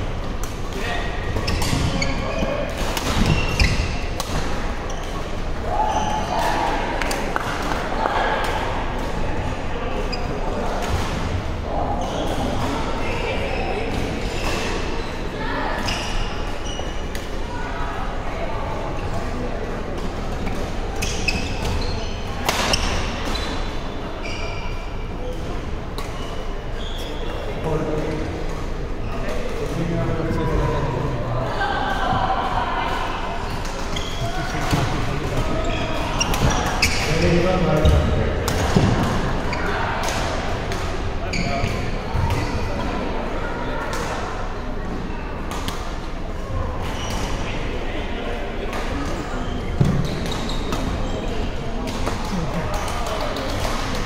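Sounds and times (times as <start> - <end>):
hum of large hall: 0.0 - 54.0
shoes squeaking on court: 1.3 - 4.2, 4.8 - 5.3, 20.4 - 25.0, 26.0 - 27.5, 33.6 - 38.1, 49.0 - 51.6.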